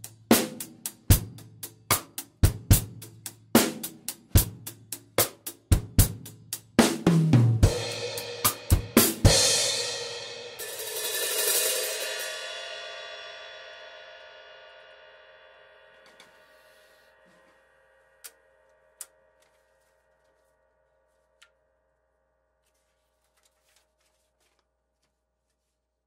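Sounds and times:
drum kit beat: 0.0s - 12.4s.

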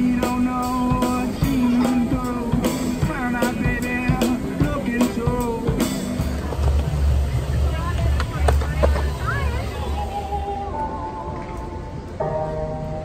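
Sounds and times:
drum kit hits: 0.0s - 9.6s
bass line: 0.0s - 11.3s
street band playing rock: 0.0s - 13.0s
pitch-bending melody: 9.1s - 13.0s.

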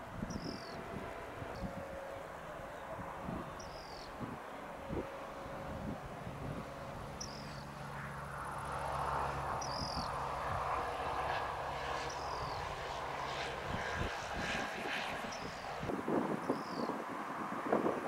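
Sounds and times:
jet aircraft noise: 0.0s - 18.0s
bird chirp: 0.2s - 0.8s, 3.4s - 4.2s, 7.2s - 7.7s, 9.6s - 10.1s, 16.4s - 17.0s.

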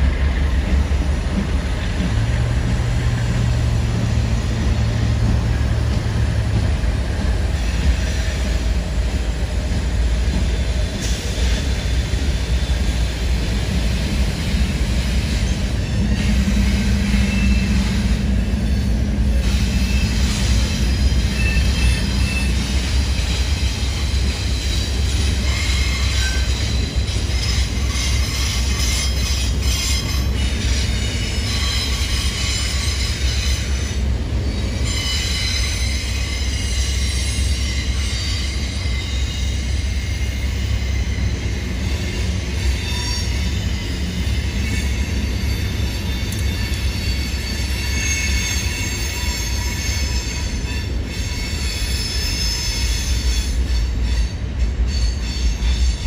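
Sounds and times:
train wheels rumbling on rail: 0.0s - 56.0s
high-pitched wheel squeal: 15.4s - 56.0s.

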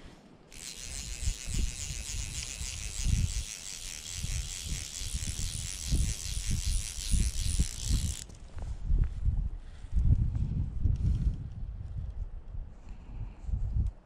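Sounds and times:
fishing reel drag ticking: 0.5s - 8.4s
wind buffeting microphone: 0.5s - 14.0s.

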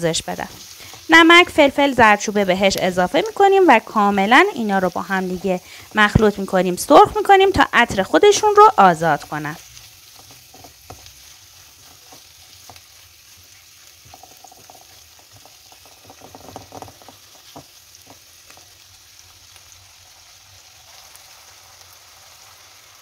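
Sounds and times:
chicken and onions sizzling in a pan: 0.0s - 23.0s
spatula scraping a pan: 9.6s - 18.8s.

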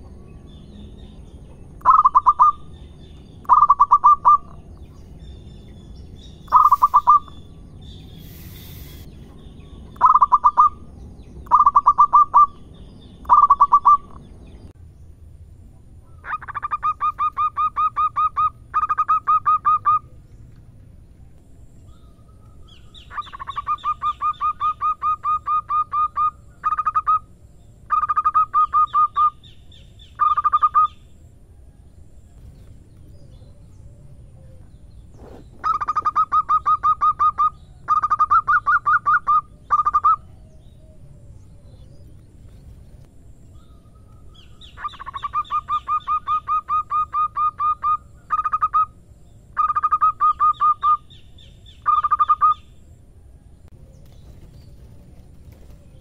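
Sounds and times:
dove cooing song: 1.8s - 2.8s, 3.4s - 4.7s, 6.4s - 7.5s, 9.6s - 14.2s, 16.2s - 20.2s, 21.8s - 31.8s, 33.1s - 42.8s, 43.5s - 49.0s, 49.6s - 56.0s.

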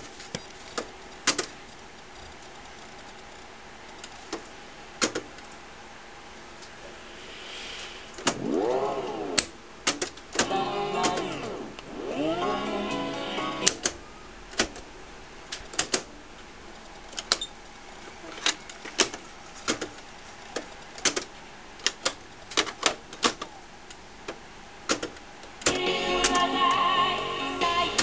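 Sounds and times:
low tape hiss: 0.0s - 18.3s, 23.5s - 28.0s
tape audio: 10.2s - 14.9s, 25.6s - 28.0s.

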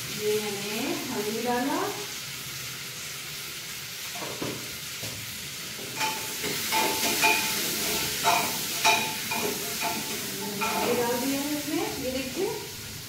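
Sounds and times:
onions sizzling in oil: 0.0s - 13.0s
metal spoon scraping pot: 6.0s - 11.1s.

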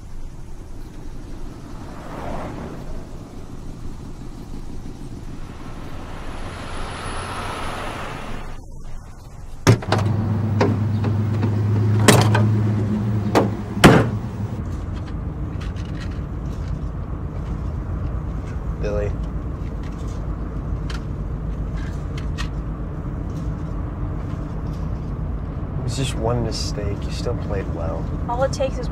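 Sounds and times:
steady low hum: 0.0s - 10.6s
car doors and trunk slamming: 13.2s - 14.4s.

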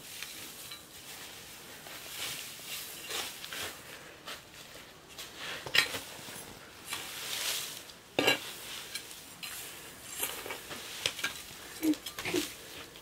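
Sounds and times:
straw rustling and scraping: 0.0s - 13.0s.

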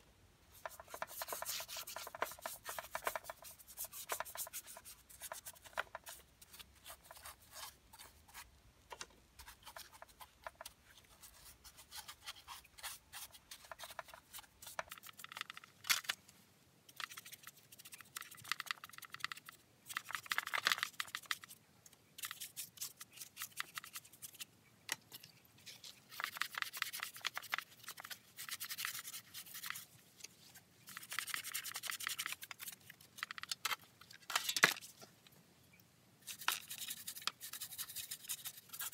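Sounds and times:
stiff brush scrubbing plastic: 0.5s - 8.5s, 36.2s - 38.9s.

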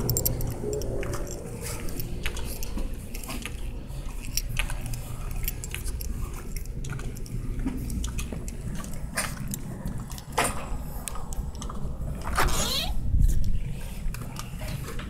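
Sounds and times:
light clicks and clinks: 0.0s - 11.8s
steady low rumble: 0.0s - 15.0s.

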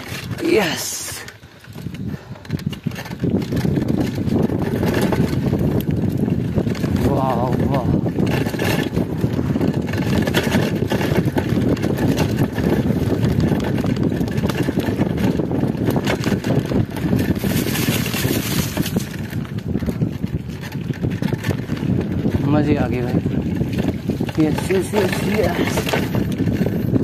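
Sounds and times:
bike rattling: 0.0s - 27.0s
wind noise on microphone: 0.0s - 27.0s
tyres crunching over stones: 15.9s - 26.5s.

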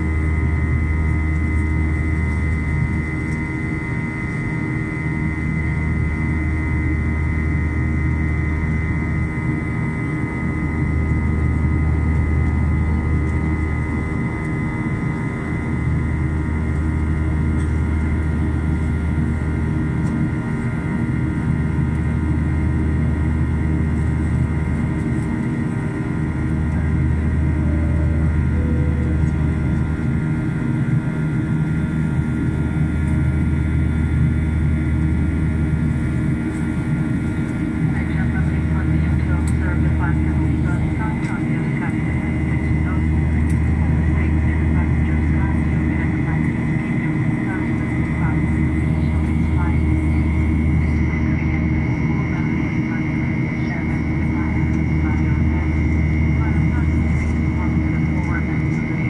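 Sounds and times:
low hum: 0.0s - 20.7s, 21.9s - 52.6s
jet engines droning: 0.0s - 59.0s
high whine: 26.1s - 32.0s.

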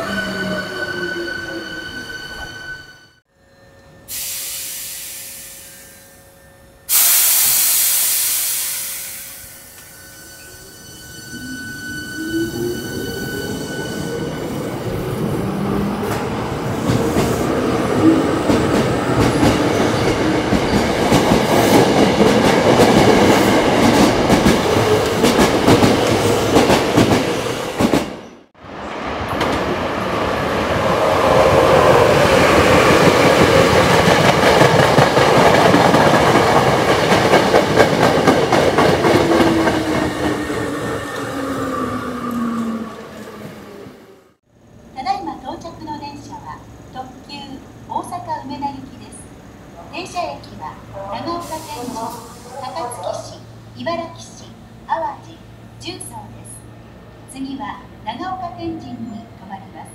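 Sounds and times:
air hiss: 4.1s - 6.1s, 6.9s - 9.8s.

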